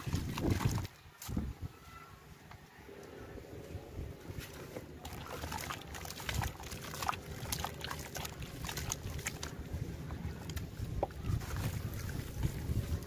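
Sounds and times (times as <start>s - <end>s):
water sloshing and splashing: 0.0s - 1.5s, 4.3s - 13.0s.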